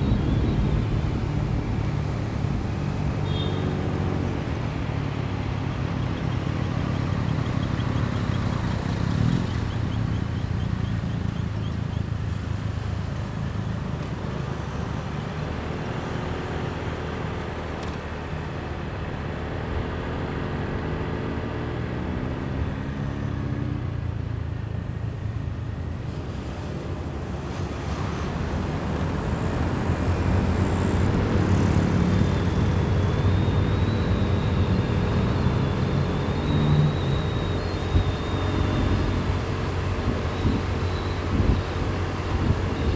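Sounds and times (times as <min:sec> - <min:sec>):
wind and road rumble: 0:00.0 - 0:42.9
motorcycle engine running: 0:28.4 - 0:34.5.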